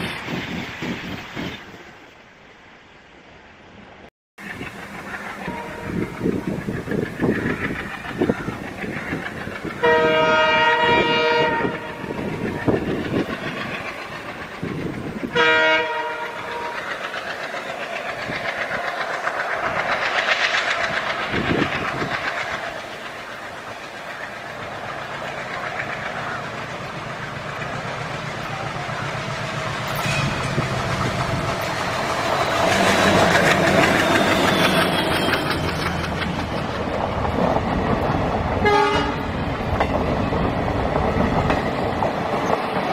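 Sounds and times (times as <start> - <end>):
train rumbling: 0.0 - 42.9
wheels clacking over rail joints: 4.4 - 42.9
locomotive horn blasts: 5.4 - 6.1, 9.8 - 12.1, 15.3 - 16.8, 38.6 - 39.3.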